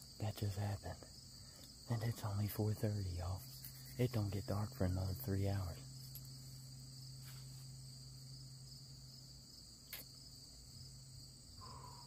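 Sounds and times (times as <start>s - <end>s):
insects chirping chorus: 0.0s - 12.0s
sharp click: 9.9s - 10.1s.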